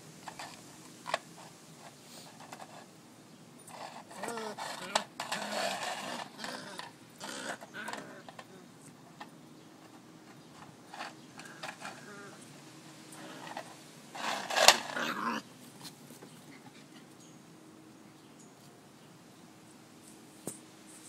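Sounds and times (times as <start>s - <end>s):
puppy growling: 3.7s - 8.7s, 11.4s - 12.5s, 13.1s - 15.5s.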